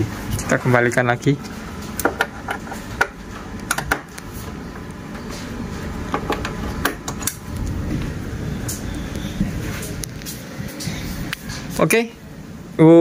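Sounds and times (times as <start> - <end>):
low rumble: 7.4 - 11.6.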